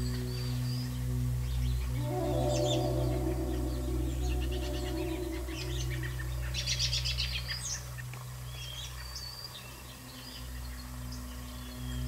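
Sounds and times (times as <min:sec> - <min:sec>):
songbirds chirping: 0:00.0 - 0:12.0
thin whistled bird notes: 0:00.0 - 0:12.0.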